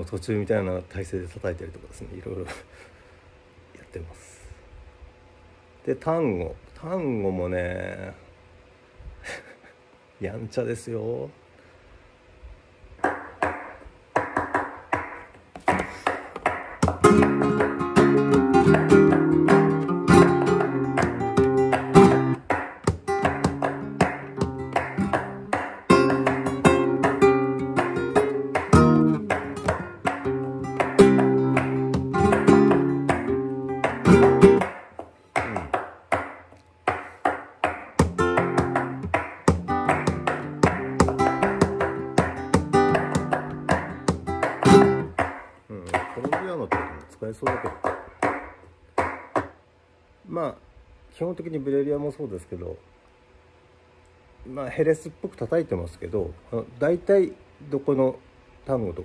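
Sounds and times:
rhythmic handclaps: 0:13.0 - 0:49.6
guitar strumming chords: 0:16.8 - 0:34.8, 0:37.9 - 0:45.2.

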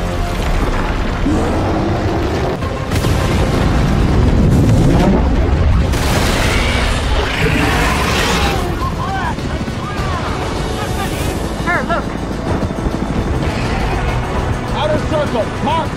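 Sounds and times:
dramatic score: 0:00.0 - 0:15.9
deep explosion booms and rumbling: 0:00.2 - 0:10.8.

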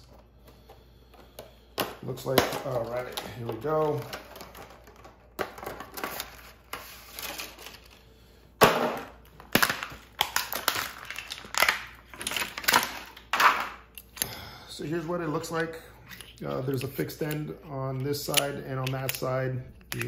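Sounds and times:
packaging crinkling and tearing: 0:02.0 - 0:08.0, 0:09.4 - 0:13.6.

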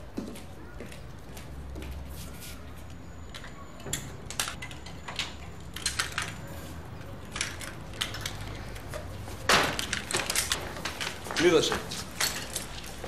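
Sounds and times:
keys jangling: 0:09.8 - 0:13.0.

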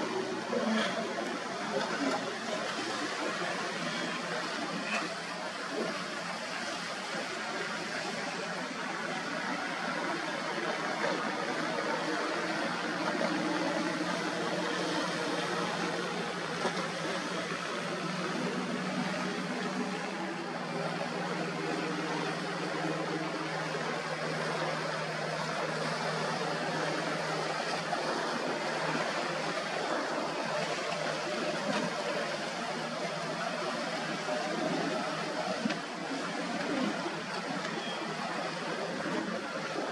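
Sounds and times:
motorboat engines droning: 0:00.0 - 0:39.9
rushing water: 0:00.0 - 0:39.9.

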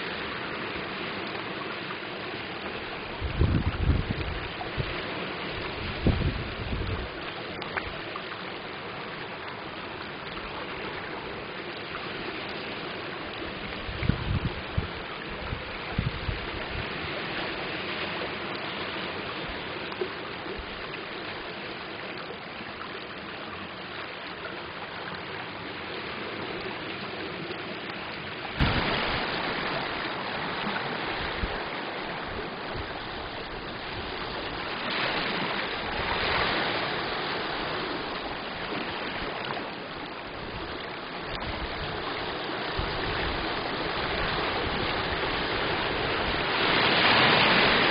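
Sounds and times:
small waves lapping: 0:00.0 - 0:47.9
water rippling over pebbles: 0:00.0 - 0:47.9
wind thumps on microphone: 0:03.2 - 0:05.0, 0:05.6 - 0:07.2, 0:13.8 - 0:17.0, 0:28.6 - 0:34.8.

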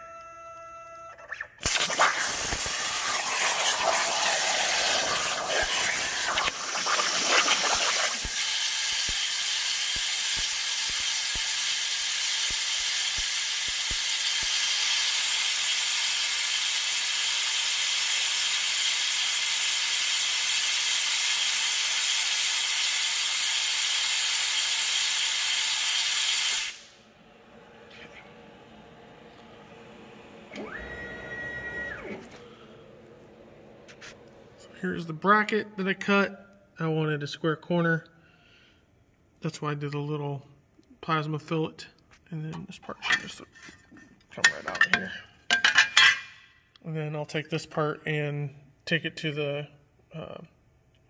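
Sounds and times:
plasma torch hissing: 0:01.6 - 0:27.0.

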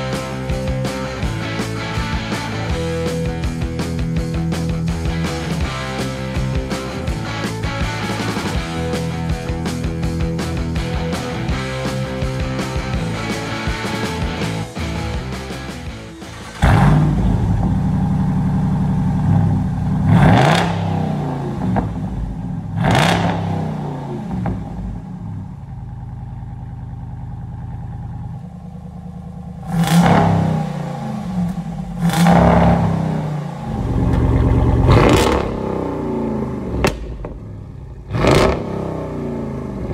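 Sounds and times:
car engine idling and revving: 0:00.0 - 0:39.9.

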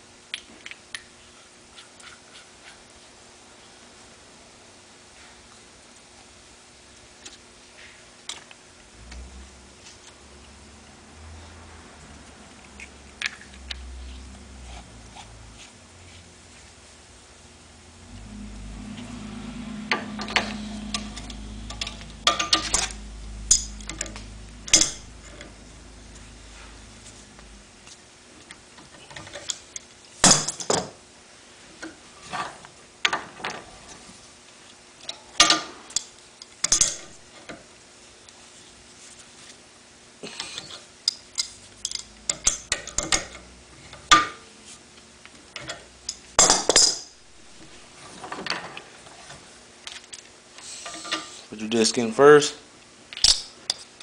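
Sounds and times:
low hum: 0:08.8 - 0:28.5.

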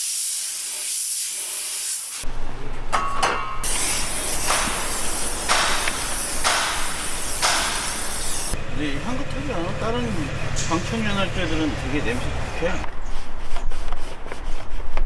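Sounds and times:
spray gun hissing: 0:00.0 - 0:02.3, 0:03.6 - 0:08.6.

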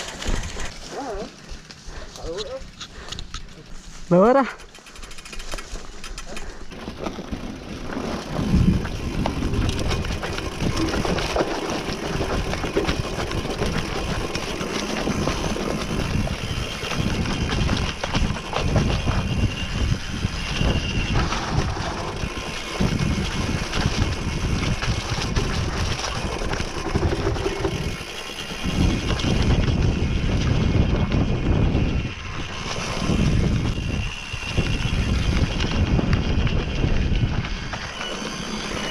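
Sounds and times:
bike rattling on rough ground: 0:00.0 - 0:38.9
wind buffeting microphone: 0:07.6 - 0:38.9.

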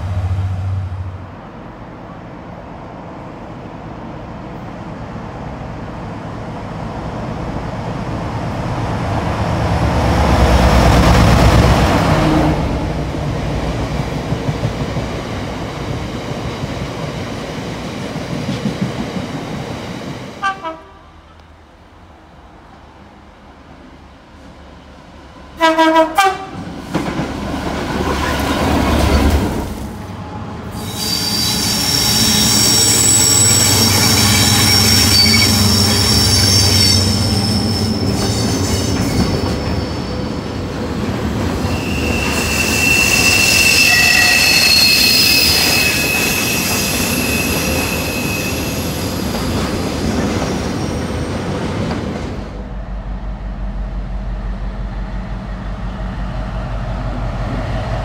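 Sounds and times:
diesel locomotive engine: 0:00.0 - 0:58.0
locomotive two-note horn: 0:20.4 - 0:21.2, 0:25.6 - 0:26.6
train wheels squealing: 0:30.8 - 0:40.4, 0:41.5 - 0:51.2.

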